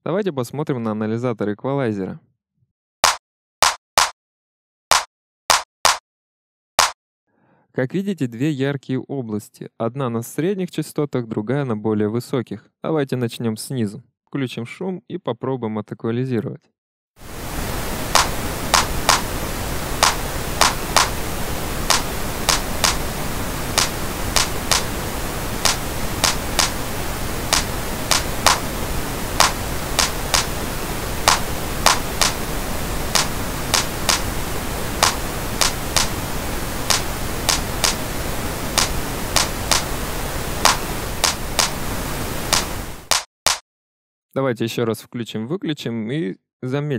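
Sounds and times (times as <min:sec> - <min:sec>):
looped clap sample: 0:03.0 - 0:04.2, 0:04.9 - 0:06.0, 0:18.1 - 0:28.8, 0:29.4 - 0:30.6, 0:31.2 - 0:34.4, 0:35.0 - 0:36.2, 0:36.8 - 0:40.0, 0:40.6 - 0:41.8, 0:42.4 - 0:43.6
steady pink noise: 0:17.2 - 0:43.2.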